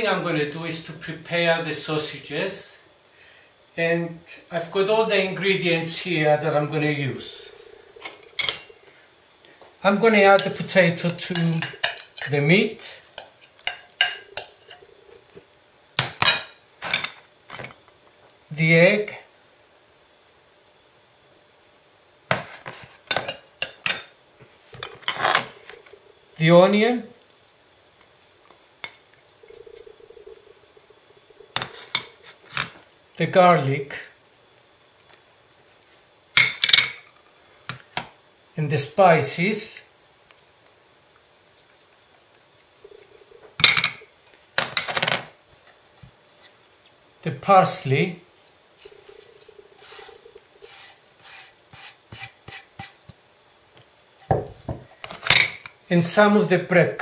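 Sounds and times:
utensils clinking glass bowl: 13.2 - 14.8.

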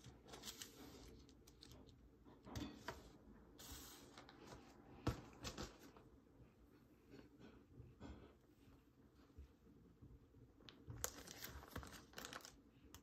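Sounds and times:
plastic bag crinkling: 10.9 - 12.6.

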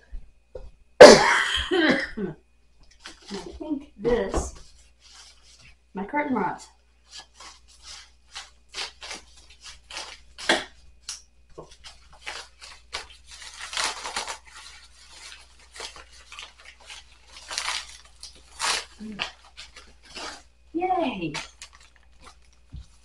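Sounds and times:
paper mailer crackling and rustling: 7.0 - 23.0
paper mailer tearing: 11.7 - 20.6.

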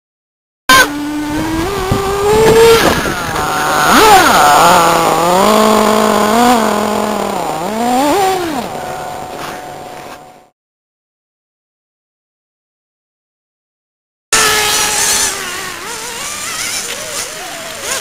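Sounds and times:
small nitro engine revving: 0.7 - 10.5, 14.4 - 18.0.

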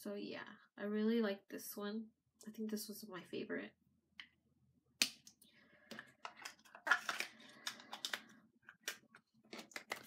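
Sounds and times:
packaging crinkling and rustling: 6.3 - 10.0.

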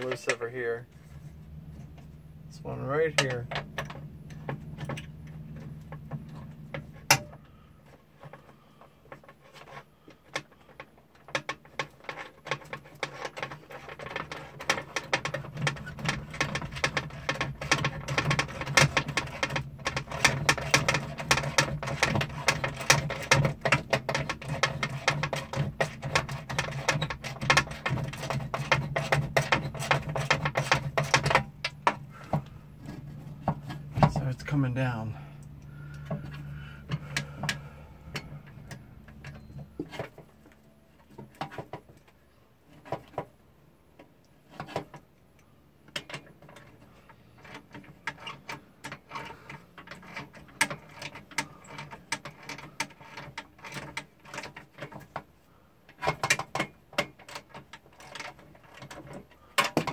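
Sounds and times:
steady low hum: 13.4 - 42.7.

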